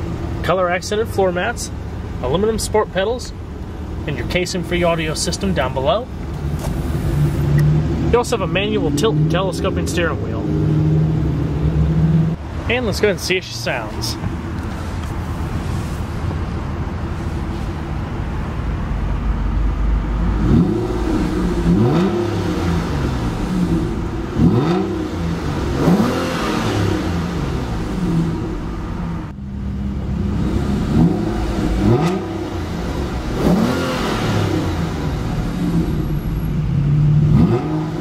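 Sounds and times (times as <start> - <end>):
car engine idling and revving: 0.0 - 38.0.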